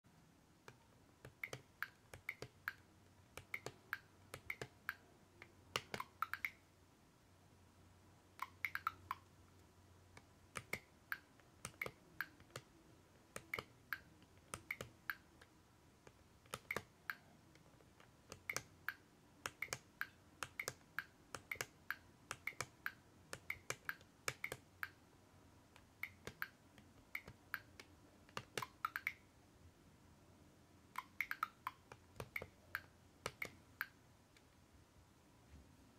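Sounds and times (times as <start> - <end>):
plastic buttons clicking: 5.7 - 6.6, 16.1 - 17.3.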